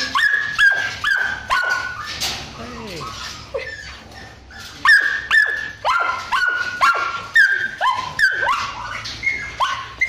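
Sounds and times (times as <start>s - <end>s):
small dog yipping: 0.0s - 2.2s, 2.9s - 10.0s.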